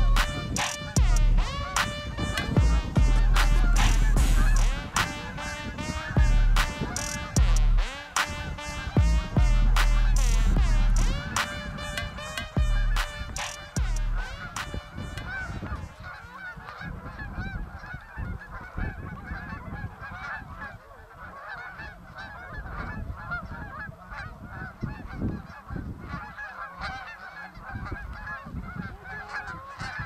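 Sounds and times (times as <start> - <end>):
geese honking: 0.0 - 30.0
low uneven rumble: 2.6 - 5.0, 9.0 - 11.4.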